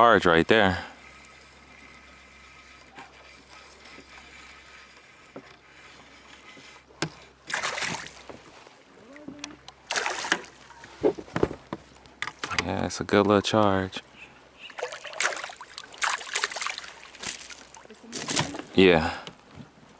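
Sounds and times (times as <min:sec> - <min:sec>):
fish splashing at water surface: 0:07.5 - 0:08.3, 0:09.8 - 0:10.6, 0:14.7 - 0:18.5.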